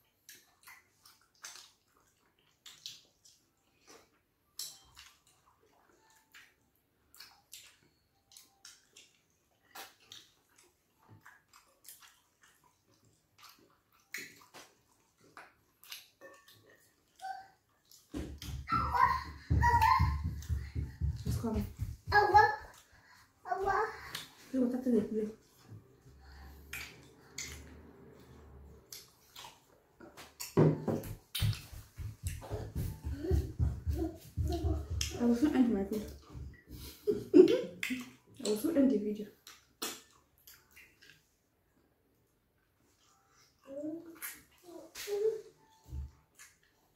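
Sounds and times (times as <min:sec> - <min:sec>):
chewing: 0:00.0 - 0:18.5, 0:25.3 - 0:30.6, 0:39.3 - 0:41.9, 0:42.6 - 0:46.9
wet eating sounds: 0:00.0 - 0:46.9
lip smacks and sticky clicks: 0:00.2 - 0:18.5, 0:26.6 - 0:30.6, 0:37.5 - 0:38.7, 0:39.4 - 0:41.3
wet lip smacks: 0:00.3 - 0:03.4, 0:26.7 - 0:27.9, 0:37.5 - 0:38.6, 0:39.4 - 0:41.3.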